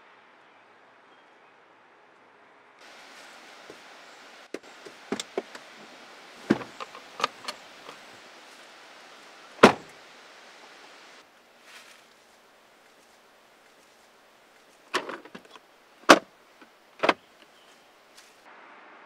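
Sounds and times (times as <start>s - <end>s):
faint steady hiss: 2.0s - 19.0s
seat latch clicks and knocks: 4.5s - 5.8s, 6.4s - 8.0s, 9.6s - 9.9s, 14.9s - 16.3s, 17.0s - 17.2s
loud thump: 9.6s - 9.9s.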